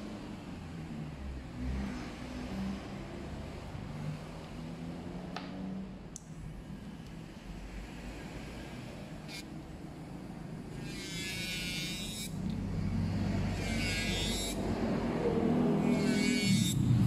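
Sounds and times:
electric nail drill humming: 9.1 - 9.6, 10.6 - 17.0
drill bit grinding on nail: 9.2 - 9.6, 10.7 - 12.6, 13.4 - 14.7, 15.8 - 17.0.

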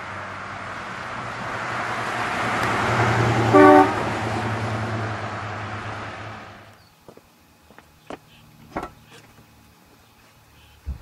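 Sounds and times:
car engine driving past: 0.0 - 6.7
car horn toot: 3.5 - 4.1.

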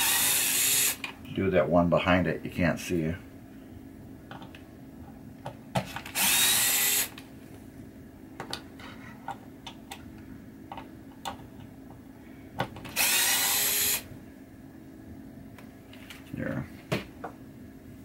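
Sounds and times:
power screwdriver running: 0.0 - 1.0, 6.0 - 7.2, 12.9 - 14.1.

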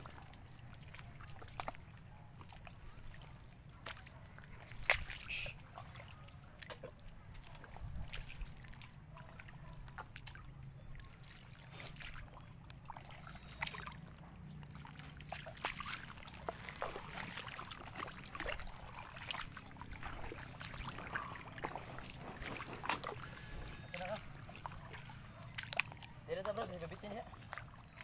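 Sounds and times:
water sloshing around wading feet: 0.0 - 28.0
mud squelches and pops: 3.8 - 5.5.

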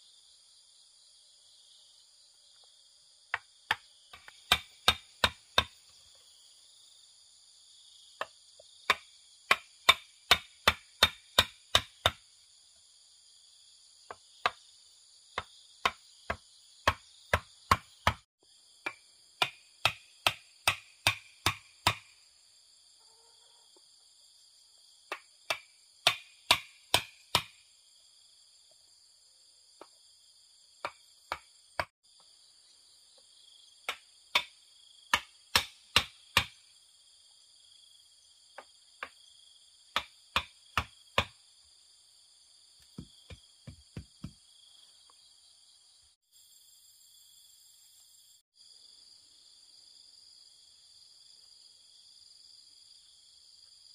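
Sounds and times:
sharp chopping strikes: 3.3 - 5.8, 8.2 - 12.2, 15.4 - 22.1, 25.1 - 27.6, 33.9 - 36.6, 40.0 - 41.4.

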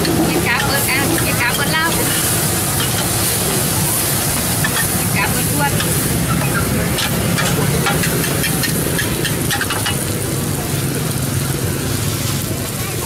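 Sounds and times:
metal spatulas scraping pan: 0.0 - 3.4, 4.6 - 10.0
noodles sizzling on iron pan: 0.0 - 13.0.

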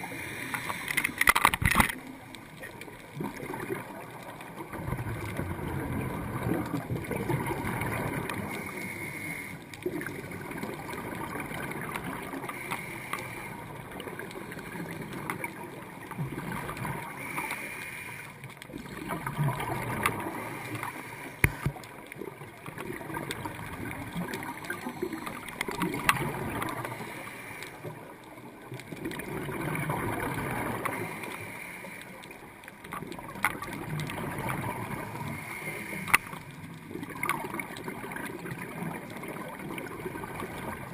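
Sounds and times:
sharp clicks: 0.5 - 2.4
diver's bubbles gurgling underwater: 1.6 - 8.7, 9.8 - 12.7, 13.5 - 17.2, 18.6 - 27.2, 27.8 - 31.2, 32.8 - 40.9.

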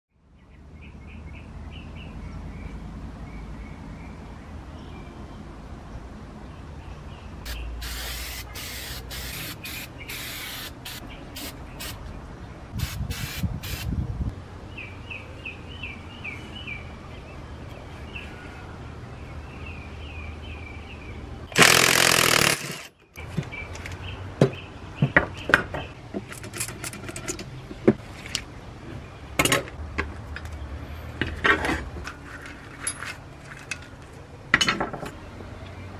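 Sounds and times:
birds chirping: 6.5 - 12.7
short hissing bursts: 7.5 - 12.0, 12.8 - 13.9
metal parts clicking and knocking: 26.2 - 27.5.

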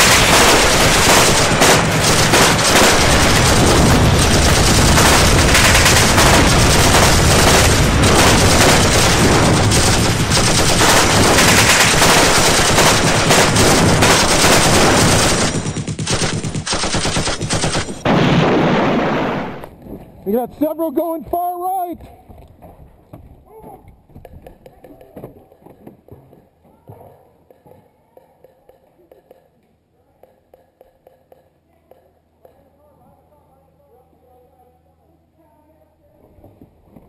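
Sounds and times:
machine-gun fire: 0.0 - 19.7.

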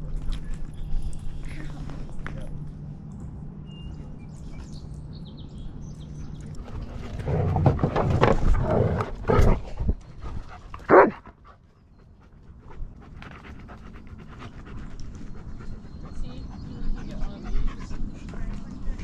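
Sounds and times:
dogs panting: 9.0 - 19.0
dog barking: 10.9 - 11.2.

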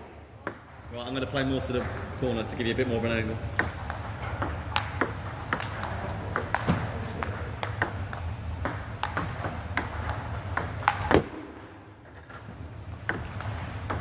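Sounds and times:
table tennis balls clicking: 0.4 - 14.0.

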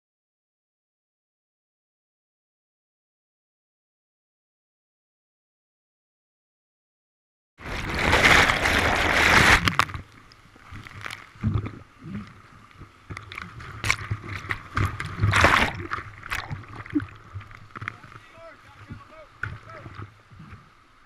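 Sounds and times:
whitewater rushing and splashing: 7.6 - 10.0, 13.6 - 21.0.

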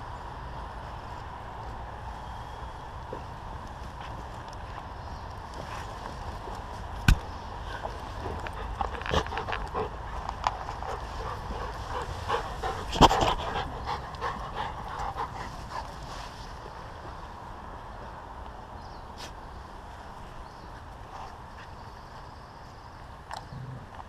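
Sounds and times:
dogs panting and sniffing: 3.2 - 17.4, 20.6 - 22.4.

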